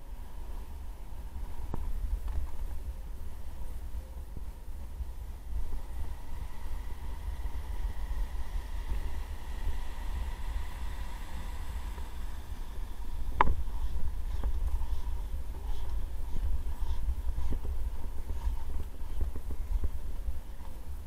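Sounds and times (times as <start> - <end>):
inline skates rolling on concrete: 4.8 - 21.0.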